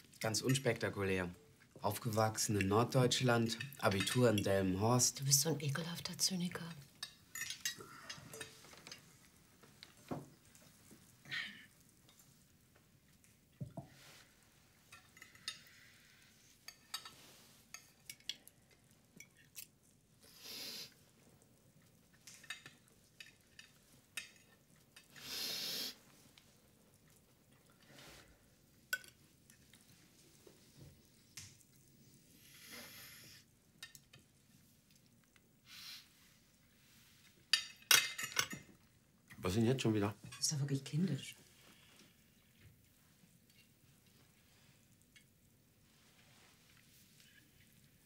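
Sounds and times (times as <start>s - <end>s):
cutlery clinking on plates: 7.0s - 9.1s, 37.5s - 38.8s.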